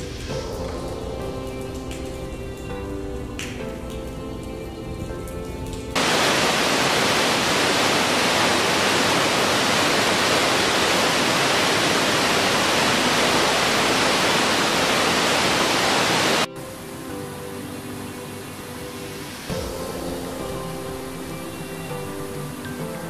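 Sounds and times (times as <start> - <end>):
background music: 0.0 - 23.0
waterfall rushing: 6.0 - 23.0.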